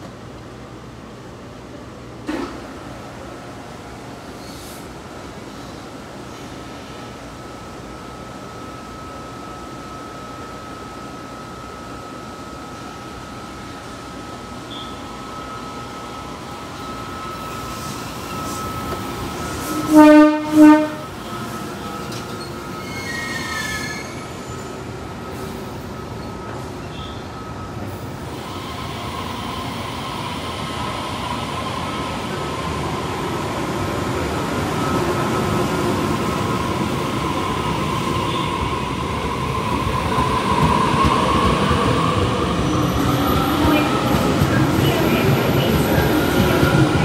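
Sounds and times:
train motor whine and wheel noise: 0:00.0 - 0:47.0
train brakes: 0:04.3 - 0:07.0, 0:17.2 - 0:33.2
train horn toots: 0:19.6 - 0:21.8.

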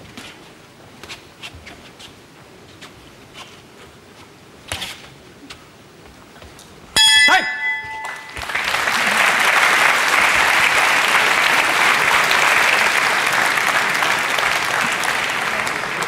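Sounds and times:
crowd applauding: 0:07.8 - 0:16.0.

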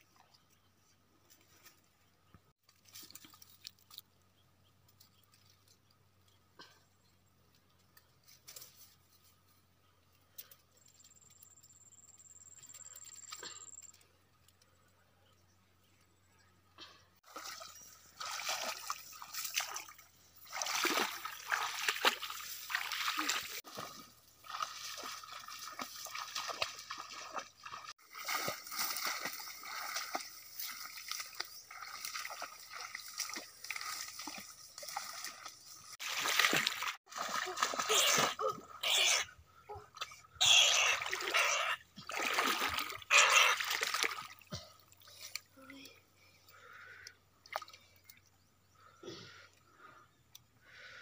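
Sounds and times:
feet splashing through marsh water: 0:17.2 - 0:39.0, 0:41.0 - 0:45.6, 0:46.6 - 0:48.2.

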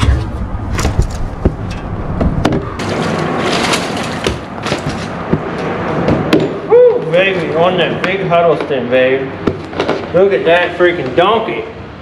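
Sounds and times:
sharp knocks and thumps: 0:00.0 - 0:06.6, 0:09.4 - 0:10.1
steady rushing noise: 0:00.0 - 0:12.0.

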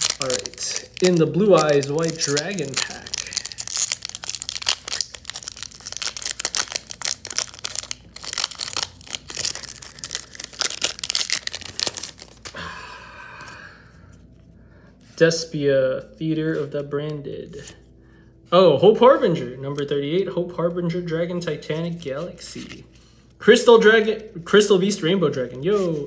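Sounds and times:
foil wrapper crinkling and tearing: 0:00.0 - 0:12.6.

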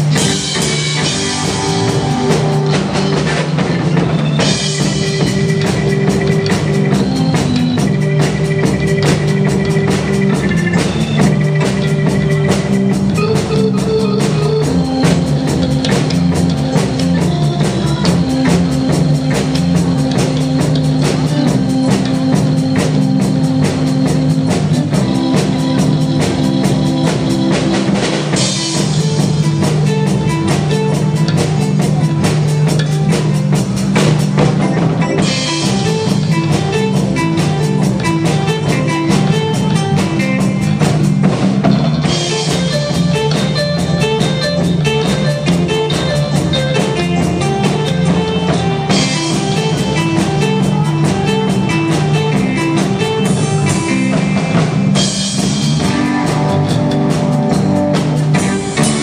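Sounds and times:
bass guitar: 0:00.0 - 0:59.0
drum kit beat: 0:00.0 - 0:59.0
electric lead guitar: 0:00.0 - 0:59.0
keyboard: 0:00.0 - 0:59.0.

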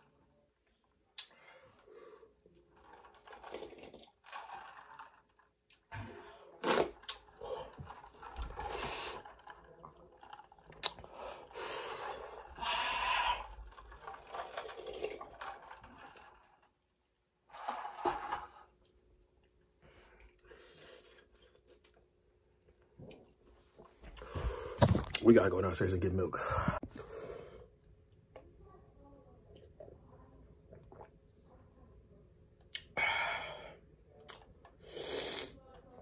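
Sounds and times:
man breathing hard and gasping: 0:26.4 - 0:27.4.

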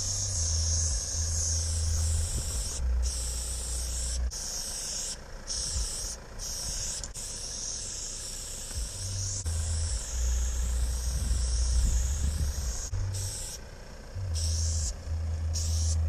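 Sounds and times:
low rumble: 0:00.0 - 0:04.4, 0:08.8 - 0:16.0
spray paint can hissing: 0:00.0 - 0:13.6, 0:14.4 - 0:16.0.

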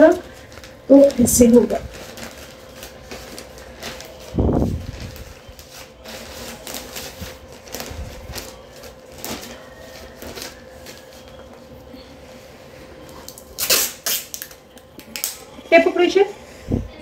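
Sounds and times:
wrapping paper crinkling: 0:00.0 - 0:15.7.

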